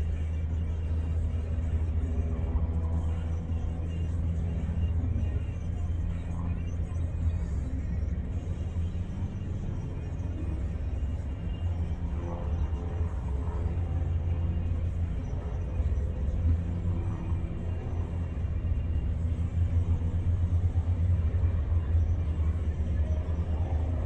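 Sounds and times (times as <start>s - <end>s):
distant airplane engine drone: 0.0s - 24.0s.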